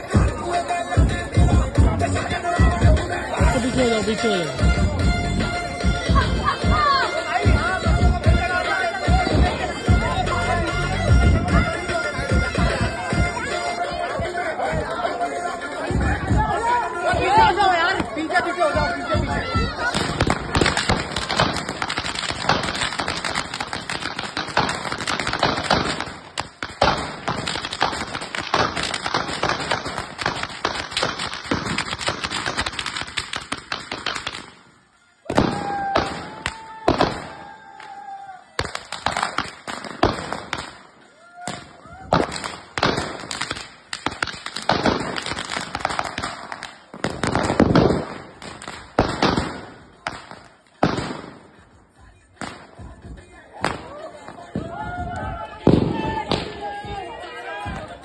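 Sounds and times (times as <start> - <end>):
firecrackers crackling and banging: 5.8 - 10.1, 15.8 - 38.0, 38.6 - 58.0.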